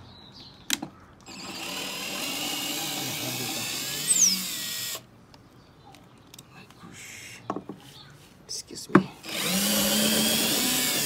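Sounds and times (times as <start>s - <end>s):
cordless drill running: 1.3s - 5.1s, 9.2s - 11.0s.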